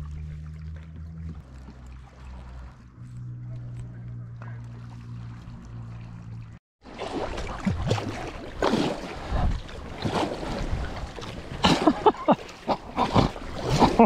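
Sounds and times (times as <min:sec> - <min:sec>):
paddle splashing in water: 0:00.0 - 0:14.0
wind on microphone: 0:09.0 - 0:11.8.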